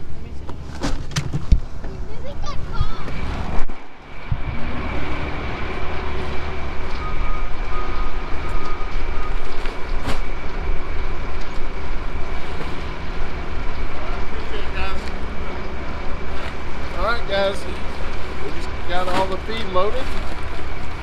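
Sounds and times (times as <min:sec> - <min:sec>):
vehicle engine and road noise: 0:00.0 - 0:21.0.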